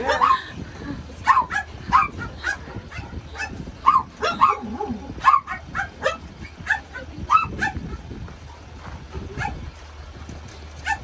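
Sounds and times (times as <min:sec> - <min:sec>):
dogs barking and yipping: 0:00.0 - 0:11.0.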